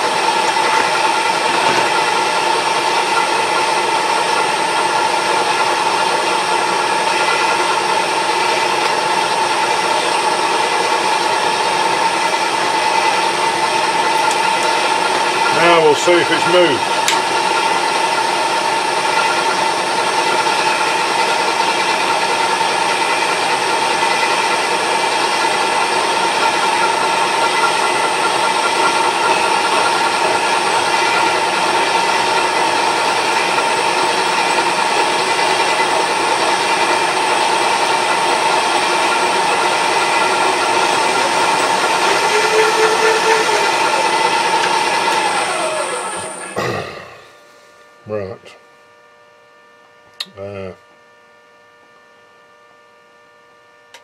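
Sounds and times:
milling machine whine: 0.0 - 48.0
hiss and chatter of cutting: 15.4 - 17.1, 38.8 - 47.4.

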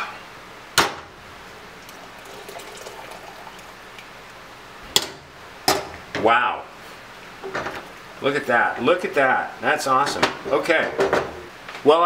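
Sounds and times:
liquid trickling through colander: 1.7 - 4.4.

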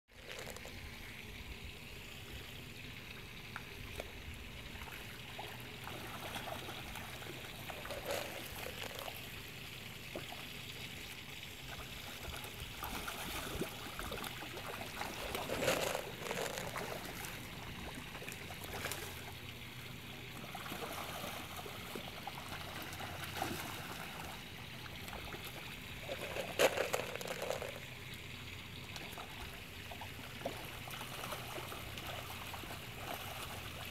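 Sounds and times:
water trickling: 0.1 - 33.9
fish splashing at surface: 0.2 - 0.8, 4.9 - 9.5, 12.1 - 19.3, 25.1 - 28.0.

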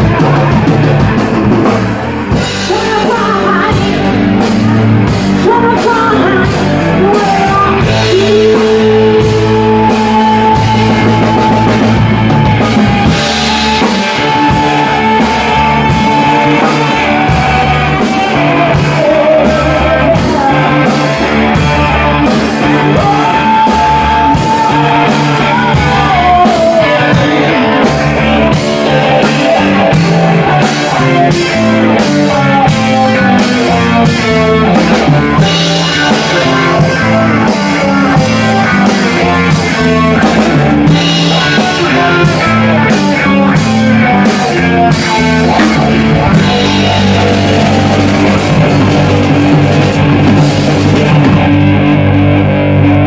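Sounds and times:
drum kit beating: 0.0 - 53.0
electric bass: 0.0 - 53.0
electric guitar: 0.0 - 53.0
woman singing: 2.6 - 4.2, 5.4 - 12.0, 12.6 - 27.9.

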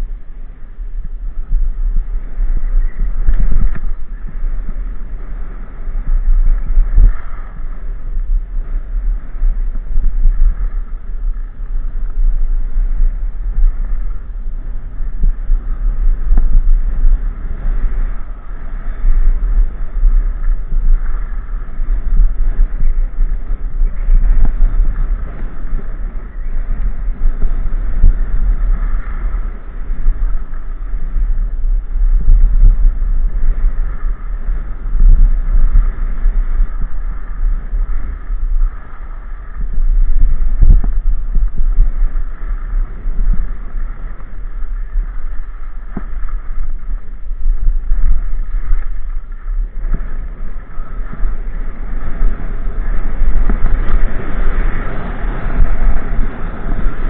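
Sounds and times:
wind noise on microphone: 0.0 - 57.0.

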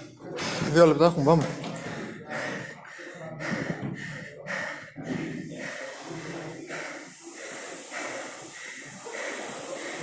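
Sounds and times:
heavy rapid breathing: 0.0 - 10.0.

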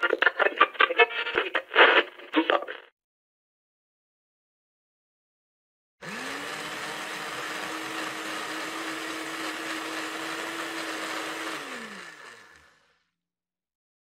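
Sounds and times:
blender motor running: 6.0 - 13.2.

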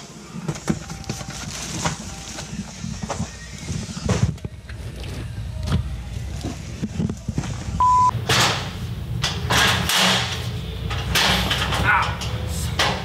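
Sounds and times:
boxes and packaging rustling: 0.0 - 5.4
short high electronic beep: 7.8 - 8.1.

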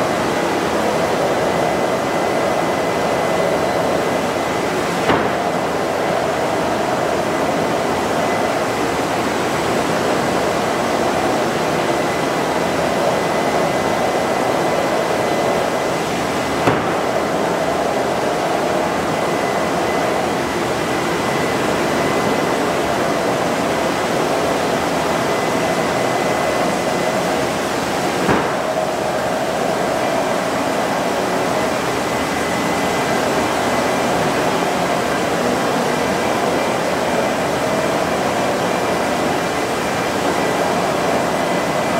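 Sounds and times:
machinery running: 0.0 - 41.9.

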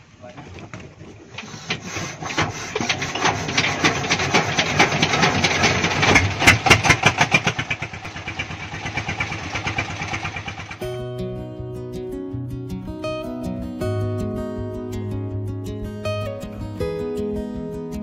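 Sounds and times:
boat engine knocking: 0.4 - 10.8.

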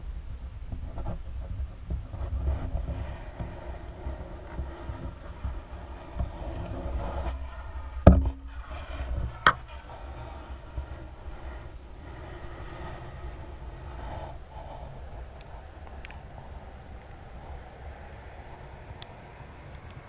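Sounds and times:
muffled underwater rumble: 0.0 - 20.0
sharp knocks: 8.0 - 9.7.

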